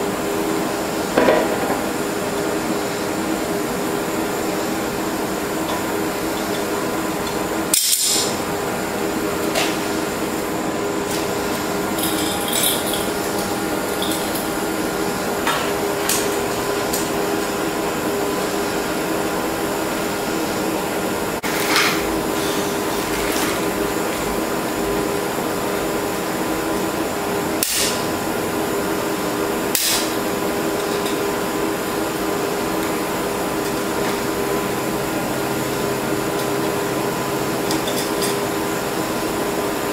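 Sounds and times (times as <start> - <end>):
propane torches burning: 0.0 - 39.8.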